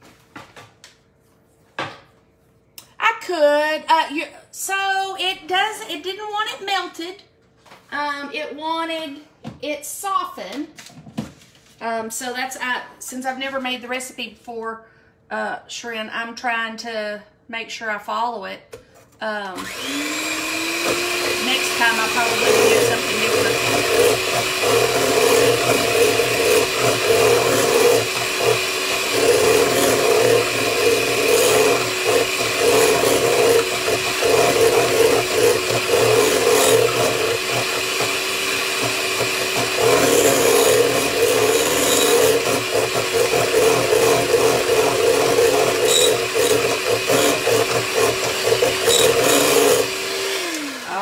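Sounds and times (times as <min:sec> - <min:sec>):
hand mixer motor whine: 0:19.6 - 0:51.0
beaters scraping batter: 0:19.7 - 0:51.0.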